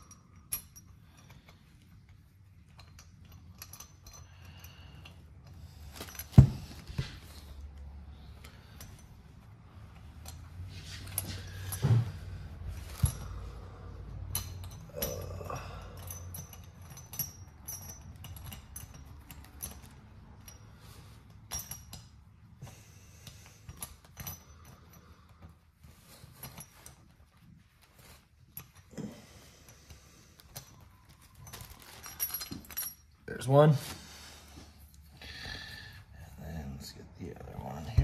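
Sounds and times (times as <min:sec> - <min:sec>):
metal parts clinking on metal: 0:00.0 - 0:07.6, 0:10.0 - 0:22.4, 0:23.2 - 0:25.0, 0:26.1 - 0:33.8.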